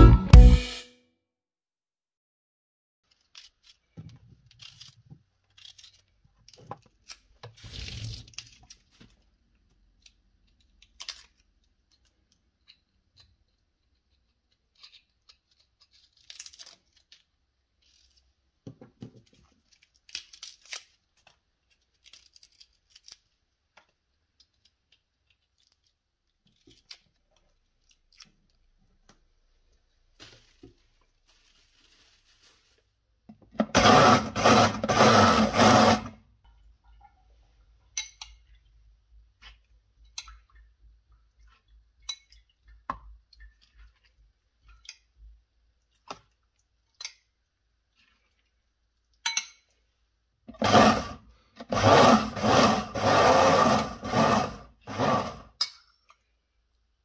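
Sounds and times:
food being handled: 0:19.0 - 0:33.0.

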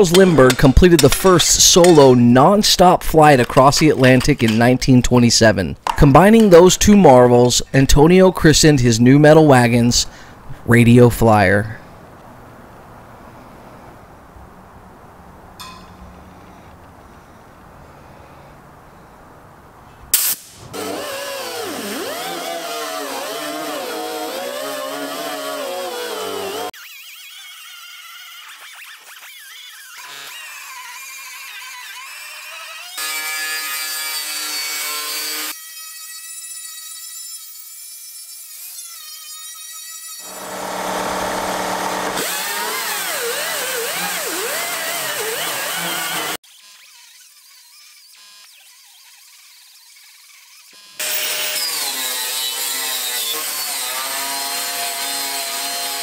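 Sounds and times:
air grinder whining on metal: 0:20.2 - 0:26.7, 0:40.2 - 0:49.2, 0:49.9 - 0:56.0.

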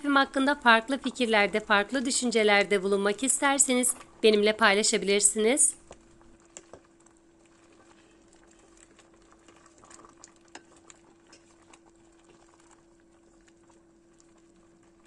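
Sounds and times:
steady low hum: 0:00.0 - 0:15.0
jam bubbling and popping: 0:00.6 - 0:15.0
wooden spoon stirring: 0:03.0 - 0:15.0.

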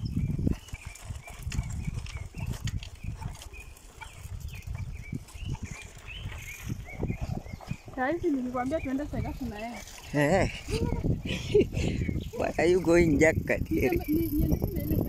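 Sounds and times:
bicycle rattling and knocking: 0:00.0 - 0:07.2, 0:12.4 - 0:15.0
wind gusting on microphone: 0:00.0 - 0:15.0.

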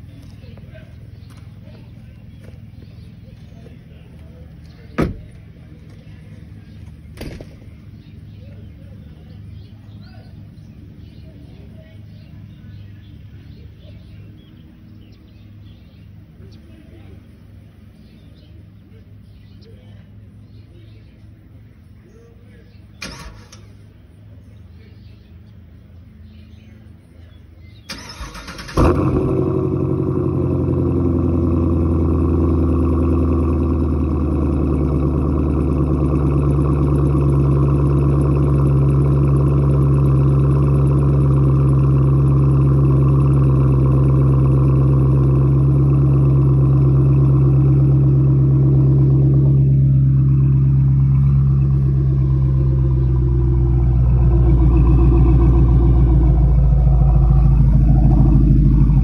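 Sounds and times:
car engine cranking: 0:00.0 - 0:08.3, 0:22.9 - 0:24.0, 0:27.8 - 0:59.0
car engine idling: 0:00.0 - 0:59.0.

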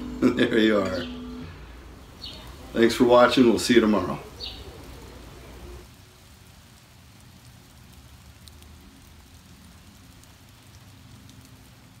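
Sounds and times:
light rain hiss: 0:00.0 - 0:12.0
faint drip ticks: 0:06.2 - 0:12.0.

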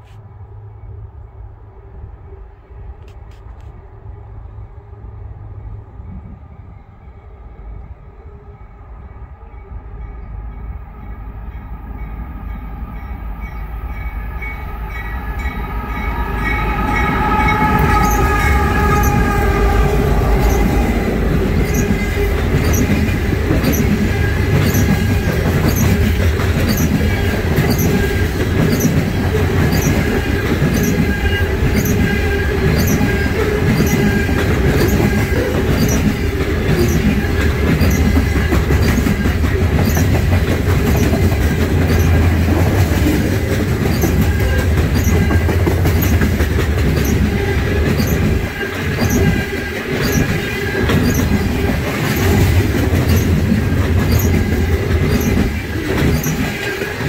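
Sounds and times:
train rumbling past: 0:00.0 - 0:57.0
locomotive horn: 0:14.0 - 0:25.4
train wheel clicks on rails: 0:16.6 - 0:57.0.

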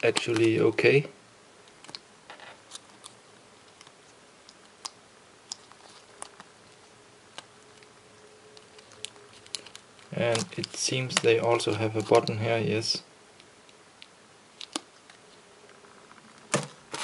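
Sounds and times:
plastic wrapping rustling and clicking: 0:04.8 - 0:07.9, 0:08.5 - 0:12.4, 0:16.2 - 0:17.0.

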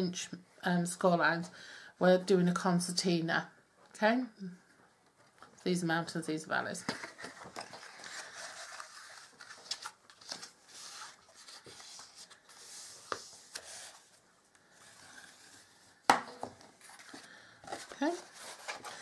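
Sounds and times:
paper rustling and scraping: 0:07.0 - 0:15.9, 0:16.6 - 0:19.0.

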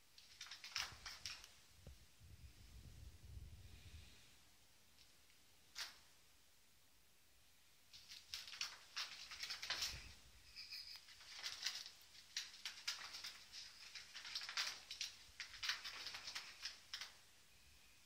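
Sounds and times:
kittens pattering on carpet: 0:07.9 - 0:17.2.

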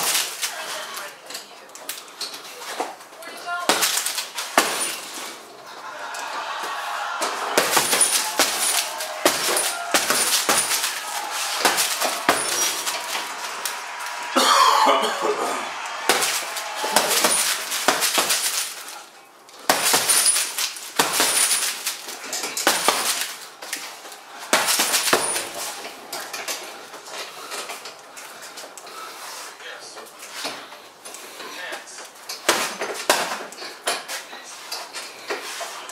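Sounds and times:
boxing gloves punching bag: 0:07.6 - 0:13.3, 0:16.0 - 0:18.8, 0:19.7 - 0:22.0, 0:22.6 - 0:23.4, 0:24.5 - 0:25.7.

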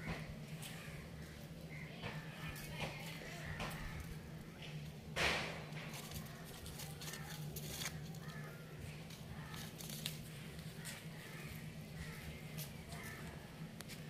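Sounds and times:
puppies scuffling: 0:05.7 - 0:08.4.

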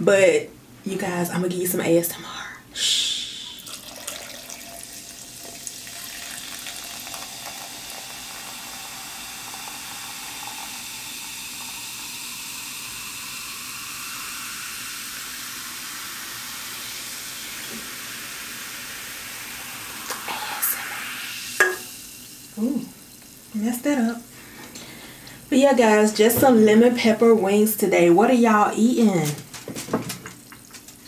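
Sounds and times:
sparkling water pouring and fizzing: 0:03.6 - 0:24.3, 0:29.5 - 0:31.0.

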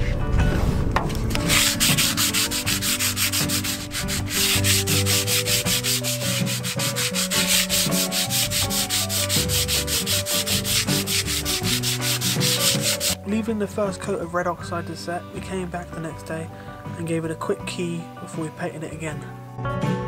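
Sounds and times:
hand sanding metal: 0:01.3 - 0:13.2.

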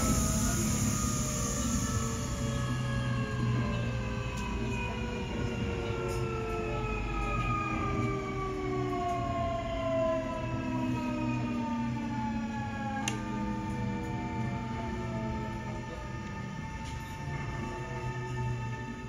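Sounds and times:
electric train motor whine: 0:00.0 - 0:05.7
wheels rumbling on rails: 0:00.0 - 0:19.0.

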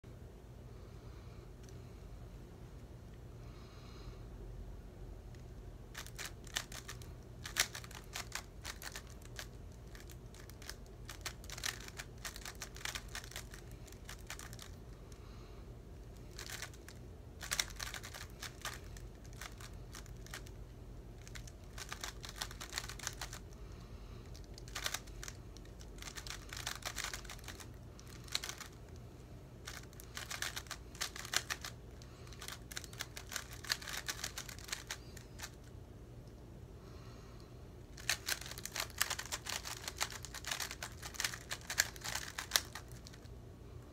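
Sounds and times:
low steady hum: 0:00.0 - 0:43.9
puzzle cube clacking clicks: 0:06.0 - 0:14.8, 0:16.3 - 0:20.5, 0:21.2 - 0:23.4, 0:24.3 - 0:28.8, 0:29.6 - 0:35.6, 0:38.0 - 0:43.3.

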